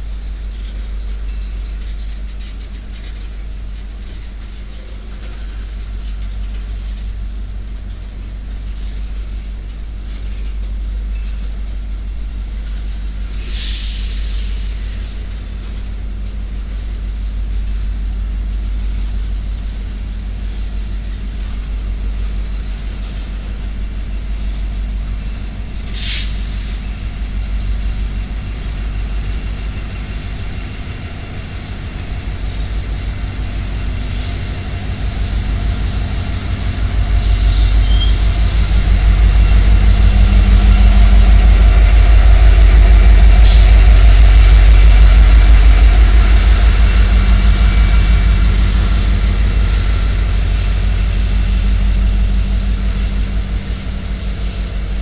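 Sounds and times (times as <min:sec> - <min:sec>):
train wheels rumbling on rails: 0:00.0 - 0:55.0
brief high hisses: 0:26.0 - 0:26.8.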